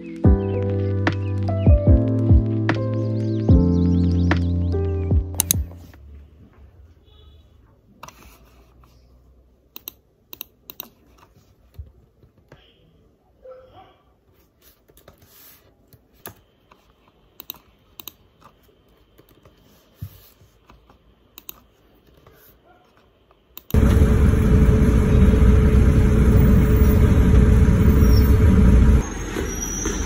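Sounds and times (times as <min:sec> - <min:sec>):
laptop keyboard typing: 0:09.8 - 0:11.8, 0:15.9 - 0:19.7, 0:20.6 - 0:22.3
vehicle interior rumble: 0:23.8 - 0:29.1.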